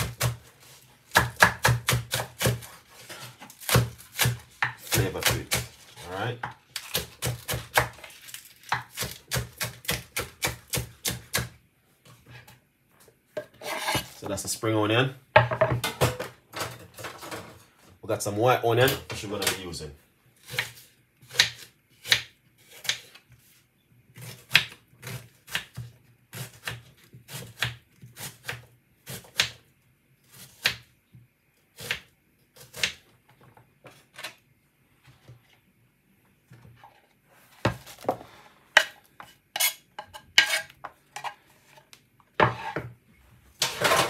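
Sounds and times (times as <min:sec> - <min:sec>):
knife chopping onion on wooden board: 0:00.0 - 0:00.5, 0:01.1 - 0:02.8, 0:03.4 - 0:08.0, 0:08.7 - 0:11.6, 0:20.4 - 0:23.2, 0:24.2 - 0:29.6, 0:30.3 - 0:30.9, 0:31.8 - 0:33.0, 0:38.8 - 0:40.7.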